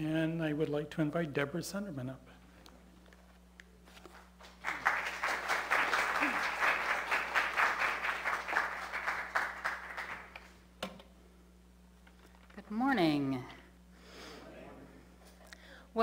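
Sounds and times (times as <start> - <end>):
congregation applauding: 4.1 - 10.6.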